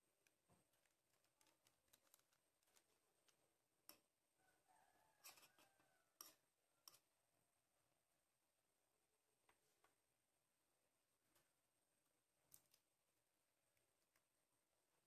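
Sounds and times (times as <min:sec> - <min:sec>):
faint clicks and ticks: 0:00.0 - 0:04.2.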